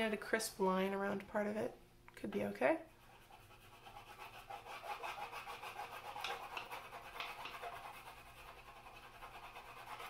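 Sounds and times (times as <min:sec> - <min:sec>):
crayon scratching on paper: 0:02.8 - 0:10.0.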